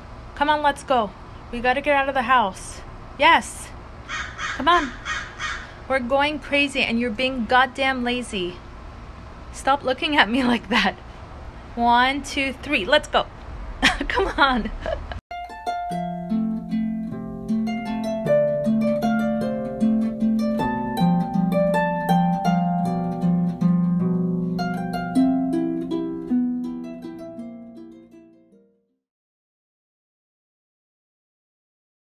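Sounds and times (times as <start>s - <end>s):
harp-like plucked string melody: 15.3s - 28.8s.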